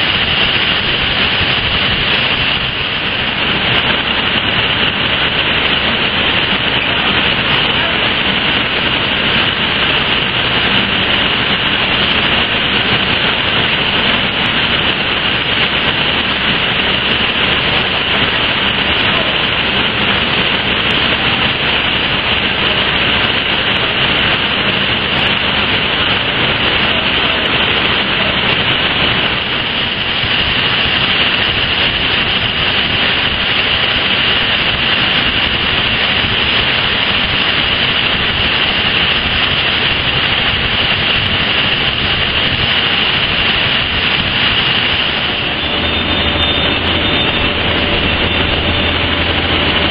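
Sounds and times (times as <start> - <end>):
loud industrial roar: 0.0 - 49.9.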